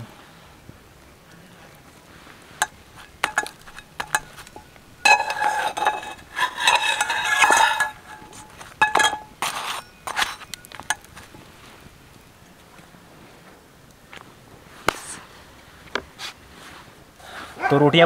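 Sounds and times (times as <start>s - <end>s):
metal spatula clinking on pan: 2.6s - 11.1s.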